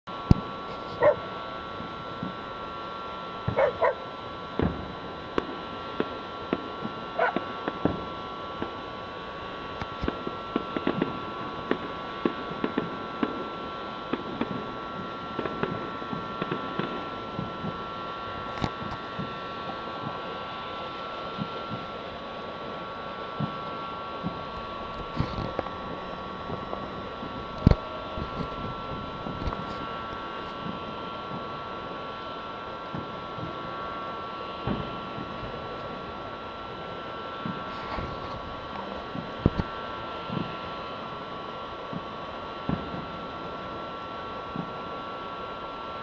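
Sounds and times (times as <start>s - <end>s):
distant fireworks popping and banging: 0.2s - 2.4s, 4.5s - 8.8s, 9.8s - 32.0s, 32.9s - 33.8s, 34.6s - 36.1s, 37.4s - 40.7s, 41.8s - 43.6s, 44.5s - 44.9s
dog barking: 1.0s - 1.3s, 3.6s - 4.0s, 7.2s - 7.4s.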